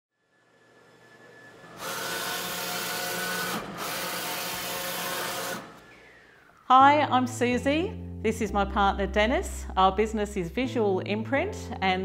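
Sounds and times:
printer mechanical whirr: 0.5s - 6.3s.

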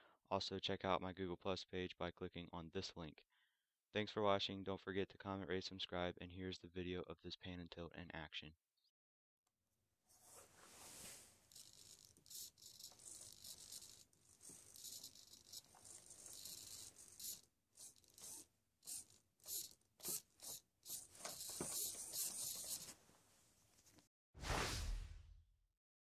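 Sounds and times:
small servos whirring: 11.4s - 23.0s.

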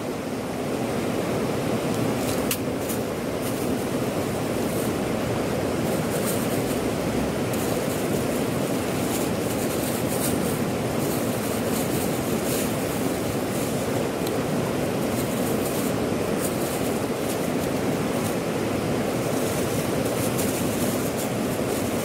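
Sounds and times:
river rapids rushing: 1.0s - 22.0s
plastic bag crinkling: 5.7s - 22.0s.

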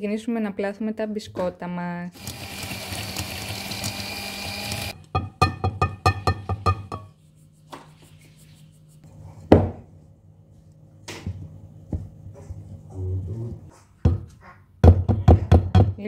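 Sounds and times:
metal bowl tapping on bowl rim: 5.1s - 7.1s.

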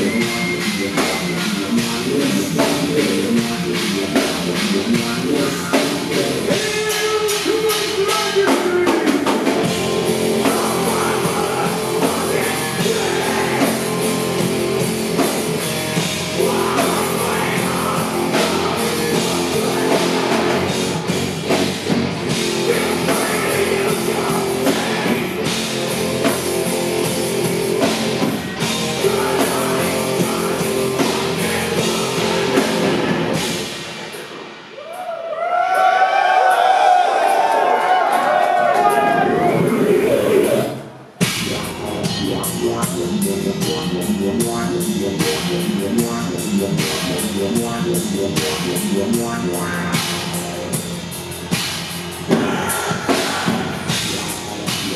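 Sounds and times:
metal band playing live: 0.0s - 34.8s, 36.6s - 54.9s
vocals: 0.0s - 35.6s, 36.5s - 54.9s
pounding drums: 41.1s - 54.9s.

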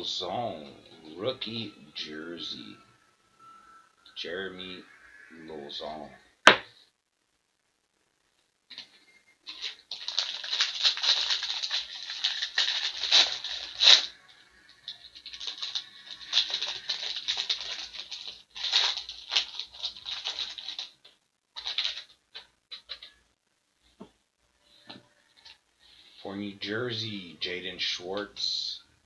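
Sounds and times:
plastic packaging crinkling: 8.7s - 23.2s.

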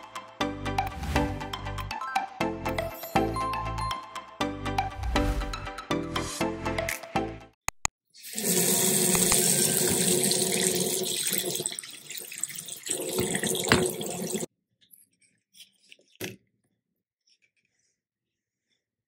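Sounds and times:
faucet water splashing into basin: 8.2s - 14.5s.

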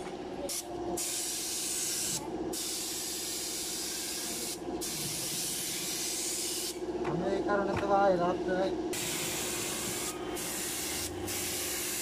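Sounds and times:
steady hum: 0.0s - 12.0s
spray gun hissing: 0.5s - 6.8s, 9.0s - 12.0s.

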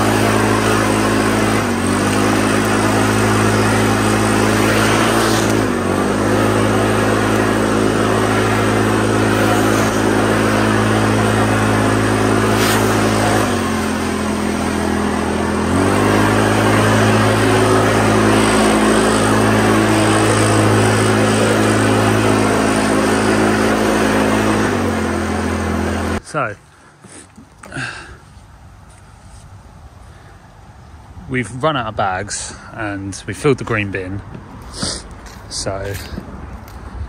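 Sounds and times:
small petrol engine running: 0.0s - 26.2s.

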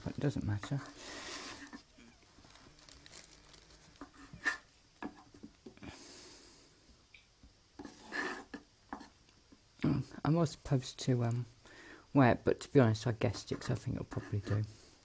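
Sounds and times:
breath: 5.8s - 6.8s, 11.6s - 12.1s.

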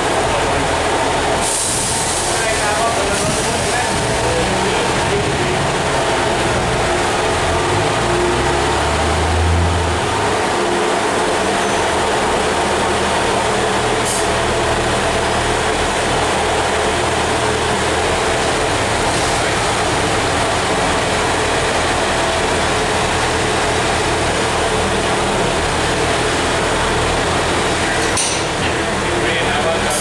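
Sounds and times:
train diesel engine droning: 0.0s - 30.0s.

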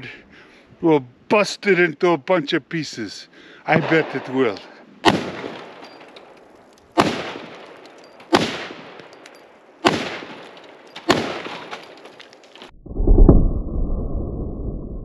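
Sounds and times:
rifle shots echoing: 3.7s - 12.1s.

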